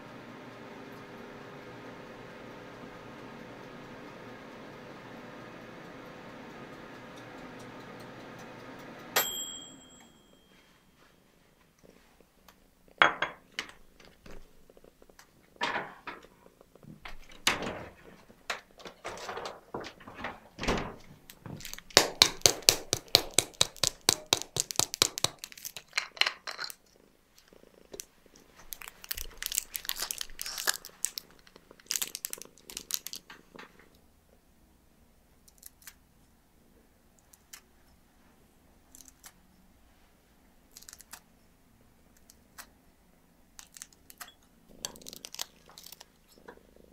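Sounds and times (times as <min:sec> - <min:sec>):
kitchen knocks: 0:13.0 - 0:13.7.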